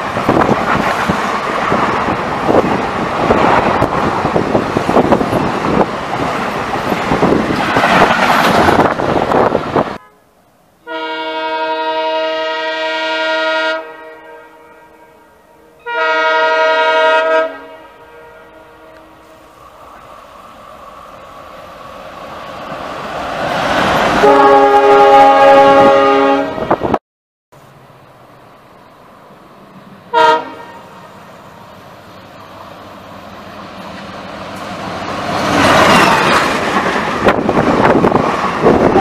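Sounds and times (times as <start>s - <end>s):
train rumbling with wheel clatter: 0.0s - 10.0s, 18.9s - 27.0s, 27.6s - 39.0s
locomotive horn blasts: 10.0s - 19.4s, 24.2s - 26.8s, 30.1s - 31.0s.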